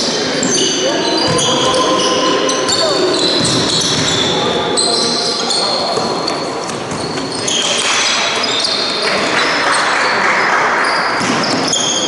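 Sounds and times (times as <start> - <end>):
echoing crowd noise: 0.0 - 12.0
basketball bouncing: 3.4 - 4.3.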